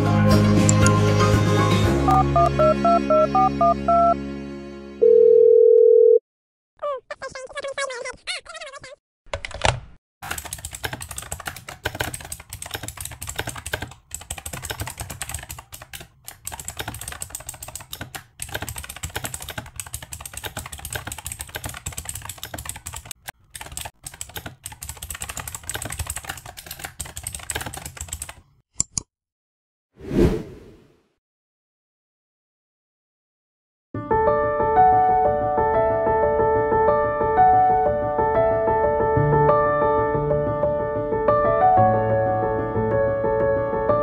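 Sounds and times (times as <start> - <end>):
rapid typing on keyboard: 9.4 - 28.4.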